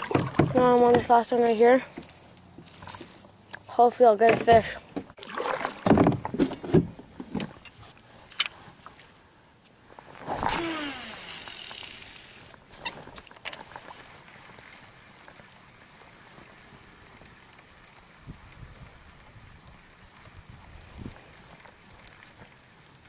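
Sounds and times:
handling knocks and rustles: 0:00.0 - 0:10.6
fishing reel spool whine: 0:01.2 - 0:03.8, 0:10.4 - 0:23.0
hiss of fishing line: 0:10.2 - 0:13.0
sharp reel clicks: 0:10.4 - 0:23.0.

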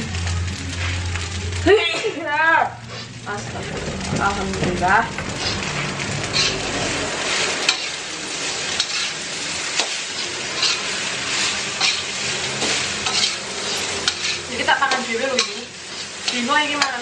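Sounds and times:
rice sizzling in a wok: 0:00.0 - 0:17.0
metal spatula scraping a wok: 0:05.2 - 0:17.0.

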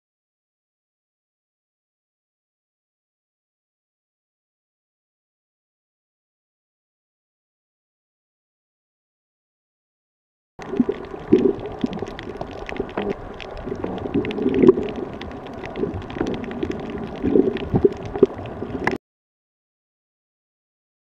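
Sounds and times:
muffled underwater gurgling: 0:10.6 - 0:19.0
sharp clicks and crackles: 0:10.6 - 0:19.0.

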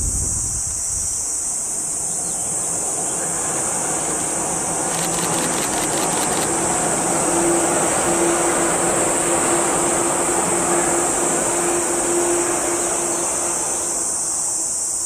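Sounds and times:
cicadas buzzing: 0:00.0 - 0:15.0
electric train running noise: 0:00.6 - 0:15.0
rapid clicks: 0:04.8 - 0:06.6.

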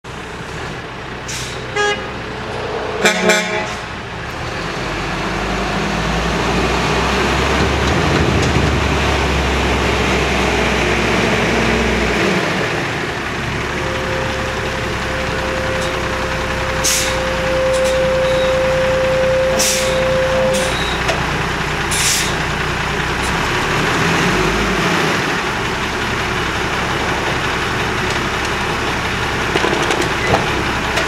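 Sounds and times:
diesel truck engine running: 0:00.0 - 0:31.0
truck horn toots: 0:01.5 - 0:04.1, 0:13.4 - 0:21.2.

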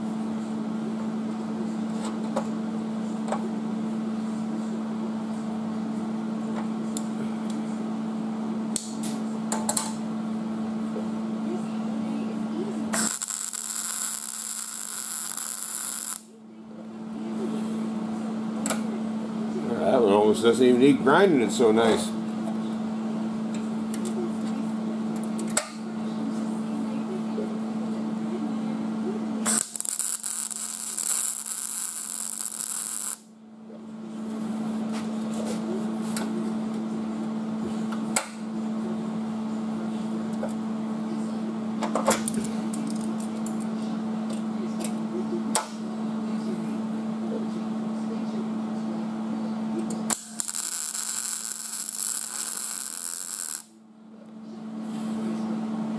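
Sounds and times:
steady electrical hum: 0:00.0 - 0:55.9
welder arc crackling: 0:12.9 - 0:16.3, 0:29.4 - 0:33.3, 0:50.0 - 0:53.7.

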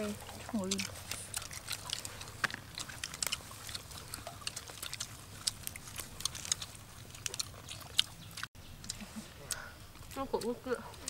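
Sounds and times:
crunching of people eating: 0:00.0 - 0:11.0.

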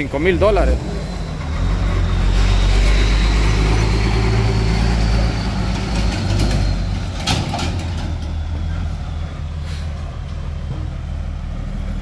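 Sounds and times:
large vehicle driving past: 0:00.0 - 0:12.0.

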